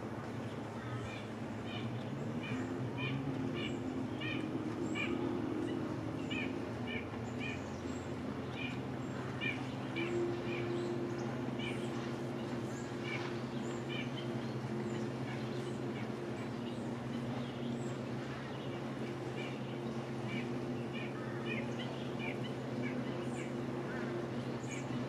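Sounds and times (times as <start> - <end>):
low motor hum: 0.0 - 25.0.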